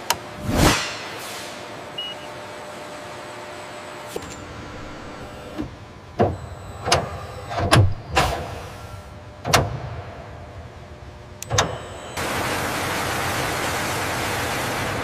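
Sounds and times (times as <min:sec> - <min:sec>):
actuator clunks and whirs: 0:04.0 - 0:12.2.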